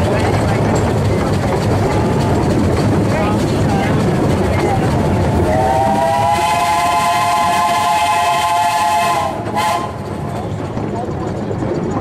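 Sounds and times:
train running rumble: 0.0 - 12.0
steam whistle blast: 5.5 - 10.1.

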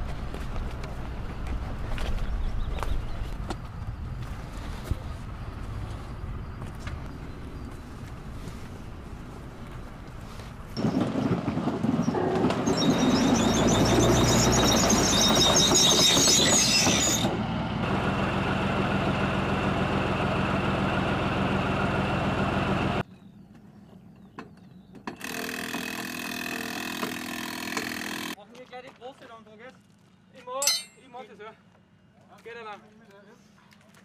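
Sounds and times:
tracked vehicle engine running: 0.0 - 15.6, 17.2 - 23.0
high squealing of tracks: 12.0 - 17.4.

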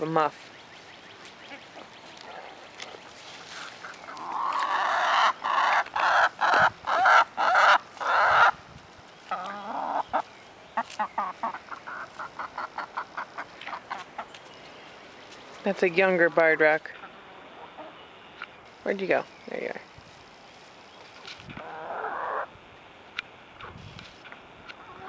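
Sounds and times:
hens clucking: 1.3 - 8.6, 9.2 - 14.5, 16.4 - 18.0, 21.0 - 22.5, 24.6 - 25.0.

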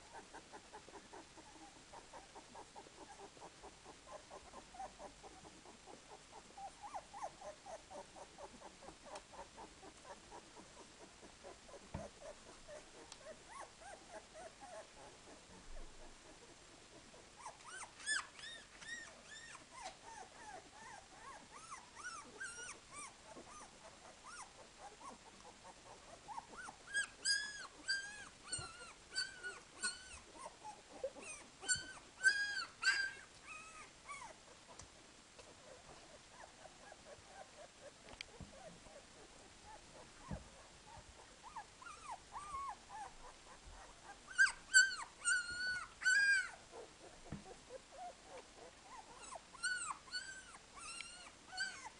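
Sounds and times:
puppies squeaking and whimpering: 17.4 - 25.2, 26.3 - 34.3, 41.4 - 51.9.

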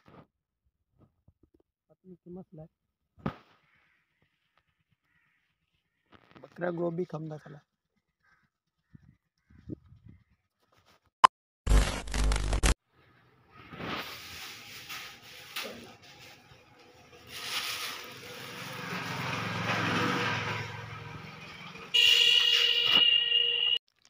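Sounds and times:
vehicle passing: 16.0 - 22.0
car horn: 19.2 - 23.8.

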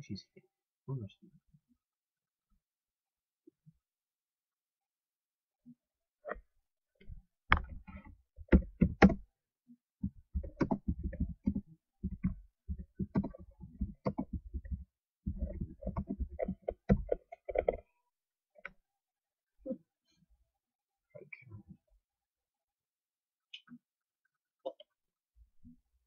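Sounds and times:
keyboard keys clicking: 10.4 - 17.8.

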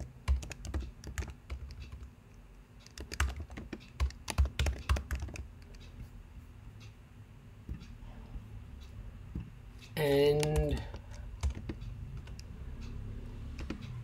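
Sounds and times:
computer keyboard typing: 0.0 - 2.1, 2.8 - 5.9, 10.0 - 14.0.

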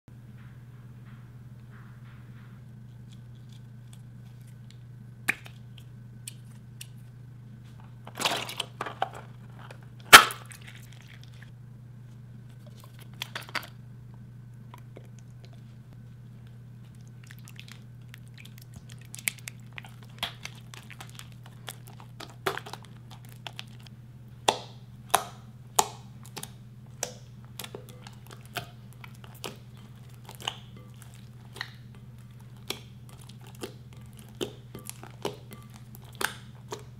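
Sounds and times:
steady low hum: 0.1 - 36.9
sticky slime squelches: 16.4 - 36.9
slime stirred in glass bowl: 16.8 - 23.9, 26.2 - 36.9.

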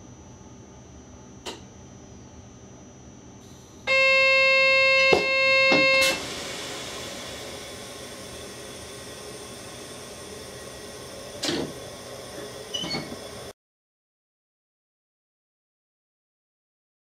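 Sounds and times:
loud steady buzzer tone: 3.8 - 6.2
hiss: 6.0 - 13.5.

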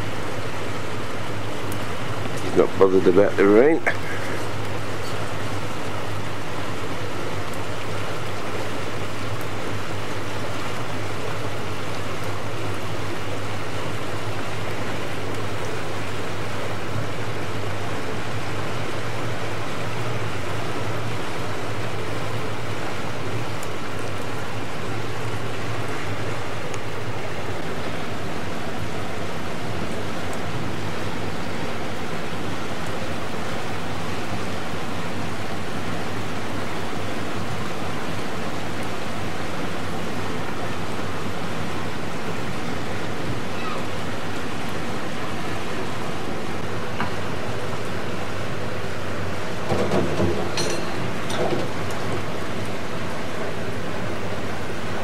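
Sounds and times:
boat engine humming: 0.0 - 55.0
rain hissing on river: 0.0 - 55.0.

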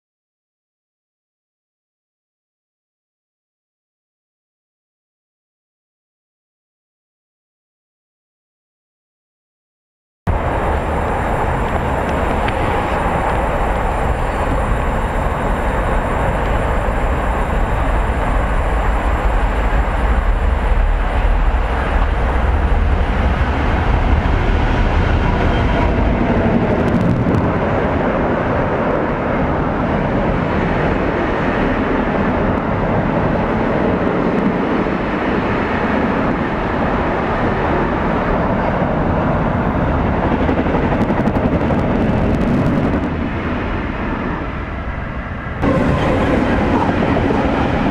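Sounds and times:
diesel locomotive rumbling: 10.3 - 47.9.

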